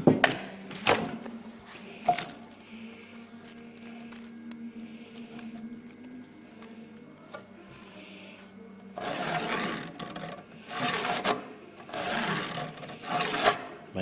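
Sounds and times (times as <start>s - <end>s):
faint steady hum: 0.0s - 14.0s
pencil scratching on wood: 9.0s - 13.7s.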